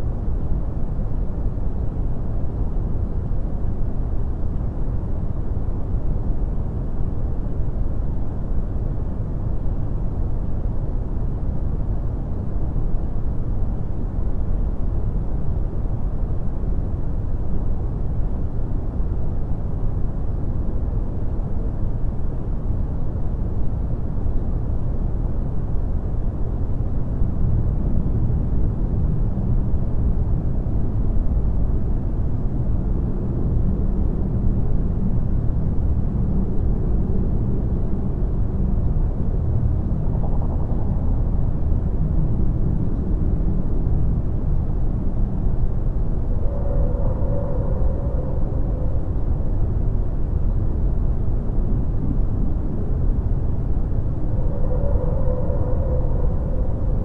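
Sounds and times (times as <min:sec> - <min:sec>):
low rumbling noise: 0:25.2 - 0:57.0.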